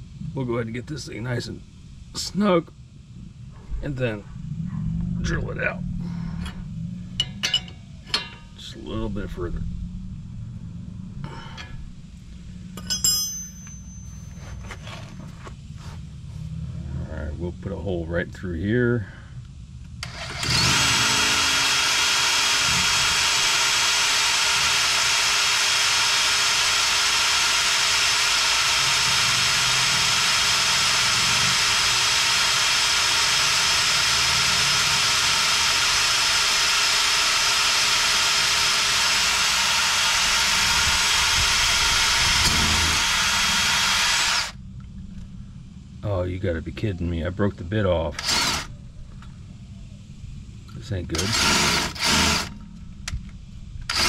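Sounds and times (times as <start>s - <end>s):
cordless drill drilling steel: 20.0s - 44.6s, 48.2s - 48.7s, 51.2s - 52.6s.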